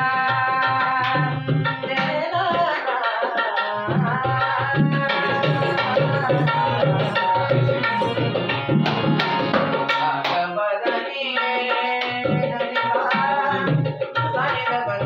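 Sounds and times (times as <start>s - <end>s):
barrel hand drum rhythm: 0.0s - 15.0s
group singing devotional song: 3.1s - 14.0s.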